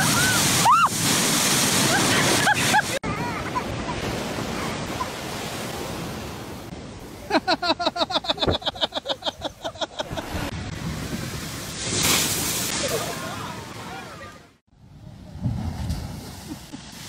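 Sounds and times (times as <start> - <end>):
ocean surf on shore: 0.0 - 17.0
person laughing: 7.2 - 10.5.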